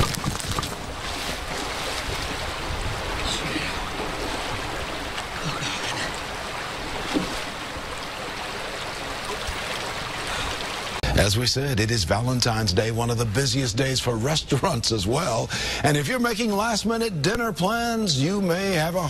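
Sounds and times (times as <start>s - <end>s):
creek rushing: 0.0s - 12.4s.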